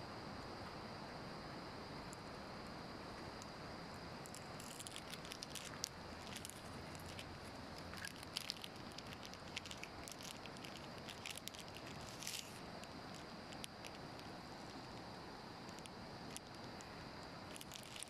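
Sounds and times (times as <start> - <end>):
faint outdoor hiss: 0.0 - 18.0
monkey eating with crackling clicks: 4.3 - 15.0, 17.5 - 18.0.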